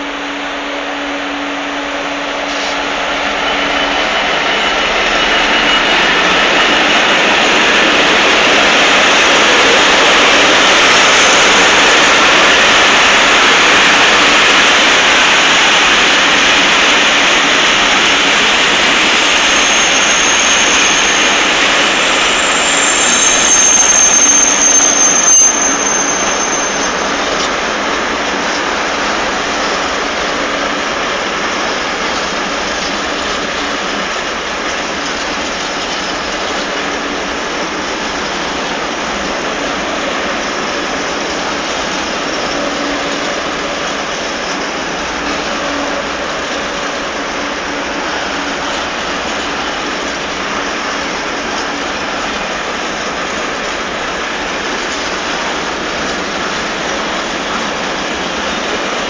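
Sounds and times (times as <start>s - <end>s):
diesel locomotive engine drone: 0.0s - 59.0s
train wagons rumbling on rails: 0.0s - 59.0s
metal squeals: 2.3s - 12.6s, 18.4s - 27.5s.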